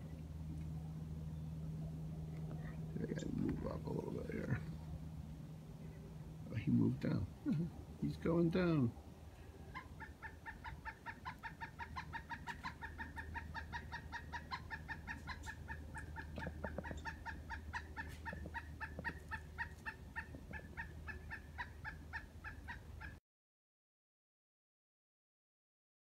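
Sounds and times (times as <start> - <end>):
woodpecker calling: 1.2 - 23.2.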